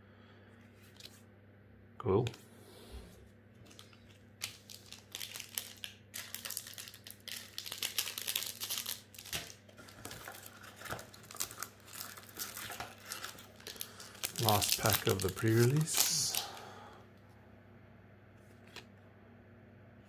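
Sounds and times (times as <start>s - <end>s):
foil wrapper crinkling: 3.6s - 16.7s.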